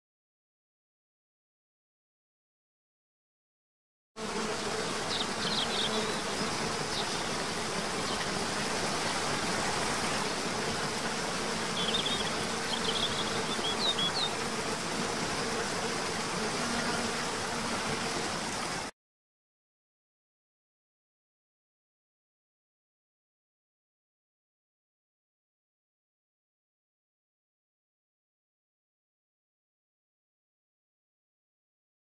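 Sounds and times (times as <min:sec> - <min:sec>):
insect hum: 0:04.2 - 0:18.9.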